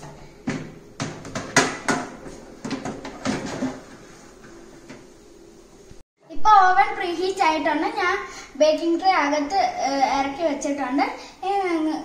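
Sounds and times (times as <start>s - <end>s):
kitchenware knocks and clicks: 0.0s - 4.0s.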